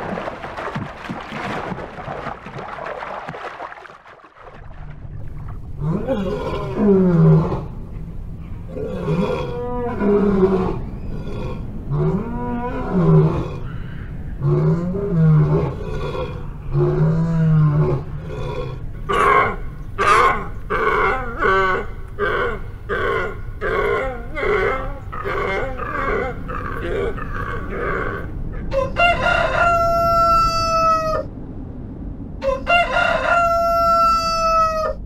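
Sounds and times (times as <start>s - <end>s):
lioness roaring: 5.7s - 7.9s, 8.6s - 13.7s, 14.4s - 28.6s.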